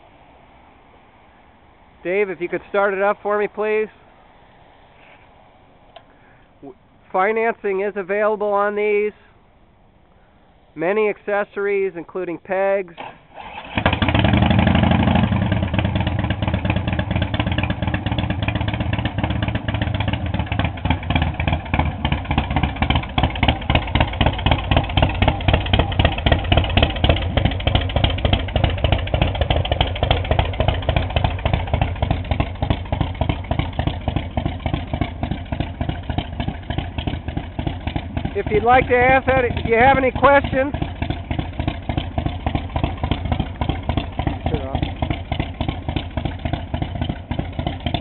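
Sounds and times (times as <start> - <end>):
motorcycle engine idling: 13.5 - 48.0.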